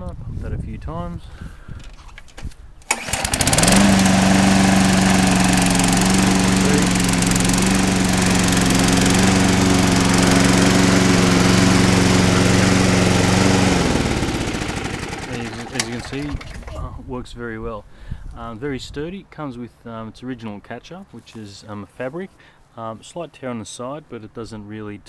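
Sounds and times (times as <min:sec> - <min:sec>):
lawnmower engine running: 0:02.8 - 0:17.0.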